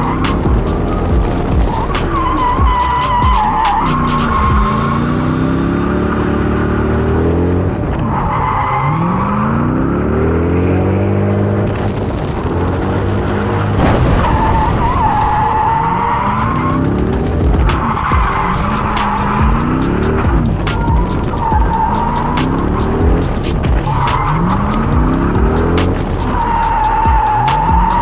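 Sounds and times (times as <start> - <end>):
car engine revving: 0.0 - 28.0
tires squealing: 0.0 - 28.0
sharp thump: 13.8 - 15.1.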